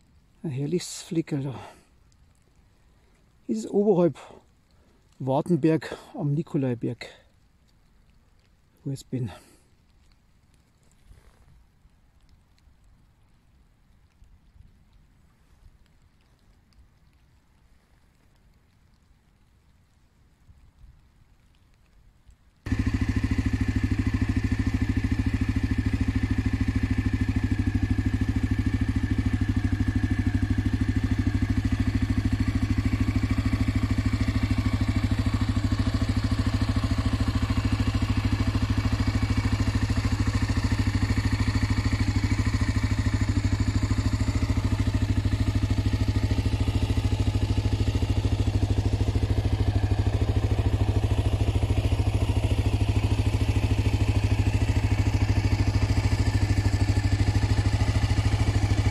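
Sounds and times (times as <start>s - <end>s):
motorcycle engine idling: 22.7s - 58.9s.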